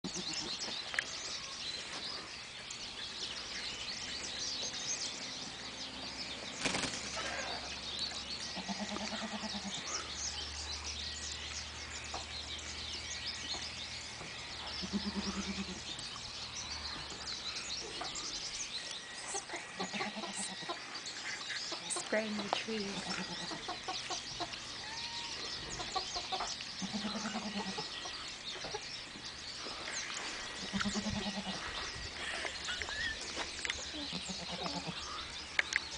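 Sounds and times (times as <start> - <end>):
small birds chirping: 0.0 - 35.9
goat bleating: 8.6 - 9.8, 14.8 - 15.8, 19.3 - 20.6, 26.8 - 27.8, 30.6 - 31.7, 34.0 - 35.0.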